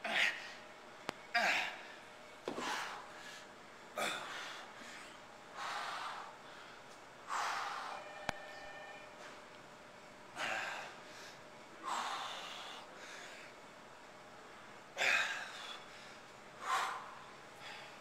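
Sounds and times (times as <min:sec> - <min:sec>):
woman breathing hard: 0:02.6 - 0:08.2, 0:10.4 - 0:13.6, 0:15.0 - 0:18.0.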